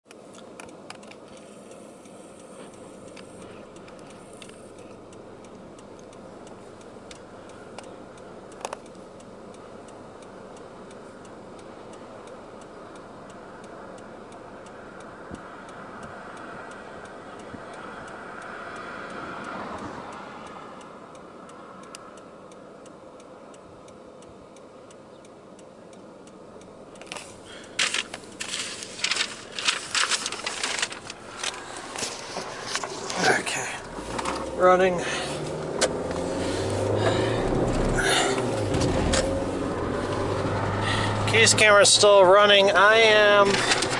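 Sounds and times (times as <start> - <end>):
car interior background noise: 0.0 - 43.9
faint regular ticking: 0.1 - 43.9.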